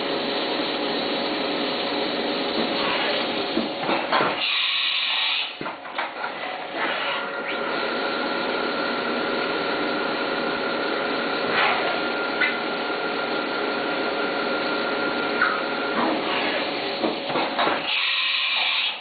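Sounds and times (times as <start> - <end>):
milling machine cutting hiss: 4.3 - 5.6, 17.8 - 19.0.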